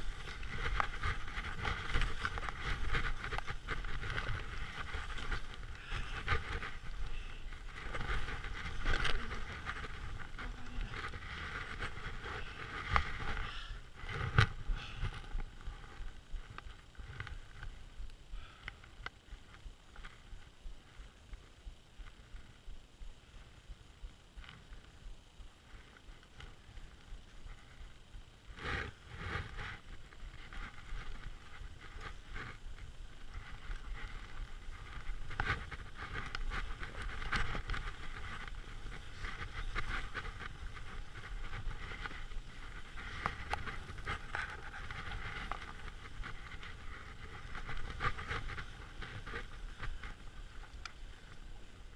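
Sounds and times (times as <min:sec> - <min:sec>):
skis scraping over snow: 0:00.0 - 0:18.0, 0:24.5 - 0:51.9
wind rumbling on microphone: 0:00.0 - 0:51.9.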